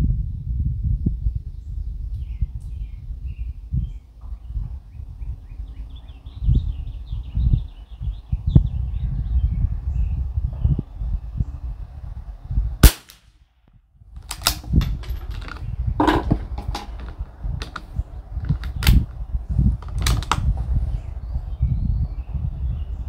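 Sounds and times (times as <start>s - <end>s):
rifle shot crack: 12.8s - 13.3s
rifle bolt clicks and knocks: 14.2s - 19.1s, 19.8s - 20.5s.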